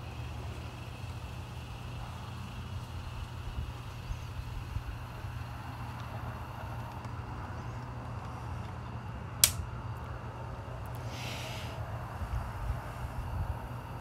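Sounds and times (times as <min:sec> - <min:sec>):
sharp click: 0:09.4 - 0:09.6.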